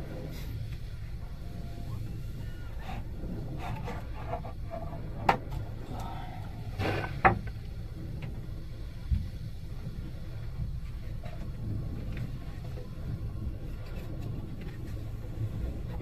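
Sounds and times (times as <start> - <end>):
muffled rush of sea waves: 0.0 - 16.0.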